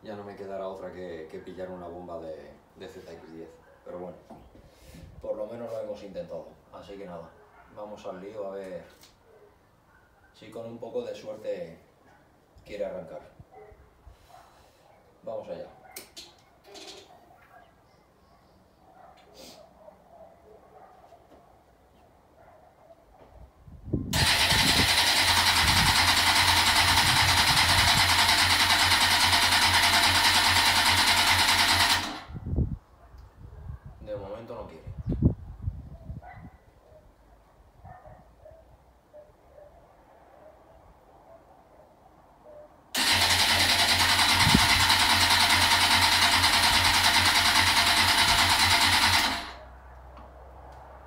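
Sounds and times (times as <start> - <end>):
starter cranking engine: 24.1 - 32.4, 43.0 - 49.6.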